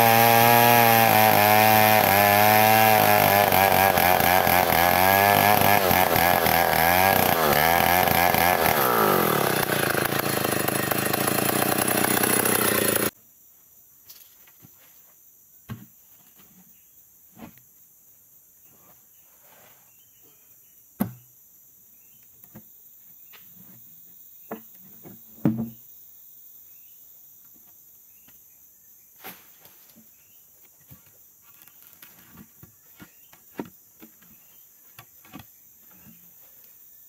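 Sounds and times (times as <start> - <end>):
forest insects buzzing: 0.0 - 37.0.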